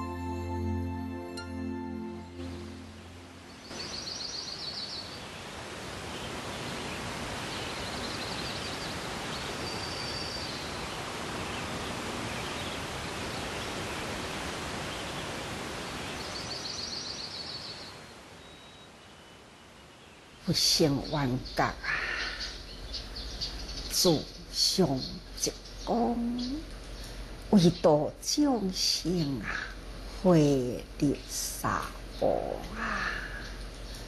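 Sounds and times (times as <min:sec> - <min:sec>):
steady rushing hiss: 0:31.2 - 0:34.0.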